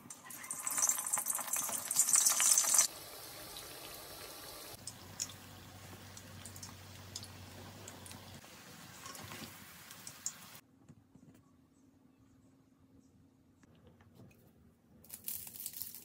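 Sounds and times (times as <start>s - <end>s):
food deep-frying in oil: 0.0s - 10.6s.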